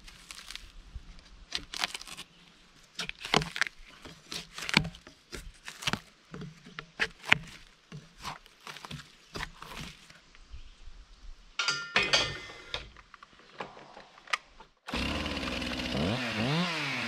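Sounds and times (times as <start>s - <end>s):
footsteps crunching on forest ground: 0.0s - 10.4s.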